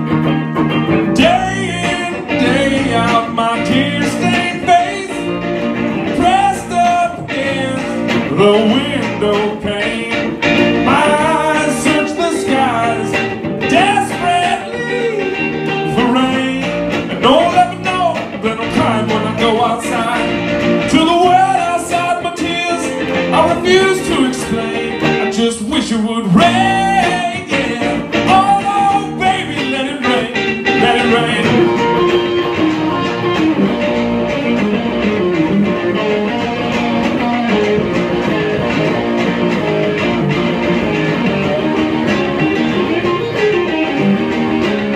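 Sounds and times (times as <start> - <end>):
electric guitars through amplifiers: 0.0 - 44.9
man singing: 1.0 - 5.4, 6.0 - 32.2.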